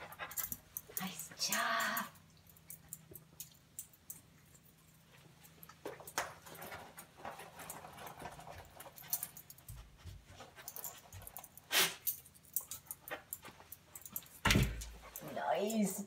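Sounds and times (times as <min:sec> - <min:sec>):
dog panting: 0:00.0 - 0:01.5
dog sniffing hard: 0:11.7 - 0:12.0.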